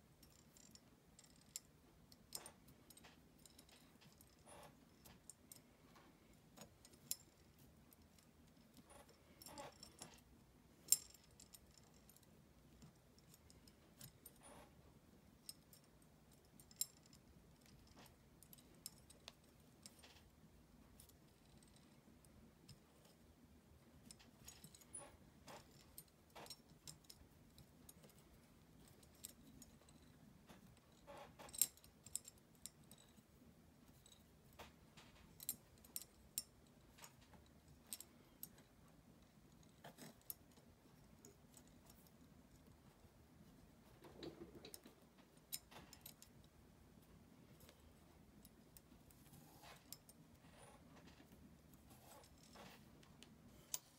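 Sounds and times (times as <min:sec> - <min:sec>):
small metallic clicks and jingles: 0:00.0 - 0:53.9.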